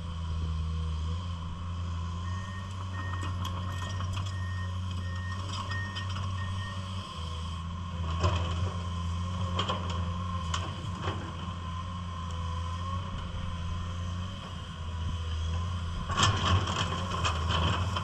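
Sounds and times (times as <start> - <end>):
excavator engine humming: 0.0 - 18.0
travel alarm beeping: 2.2 - 6.8.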